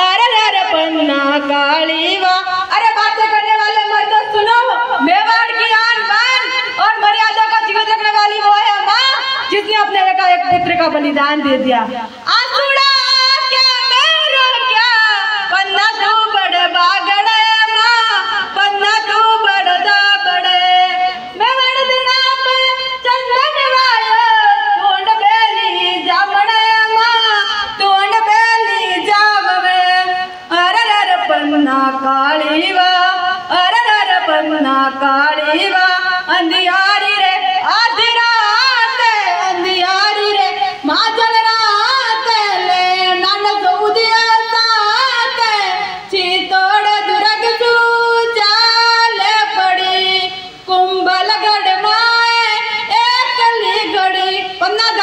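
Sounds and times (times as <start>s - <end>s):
girl singing unaccompanied: 12.2s - 55.0s.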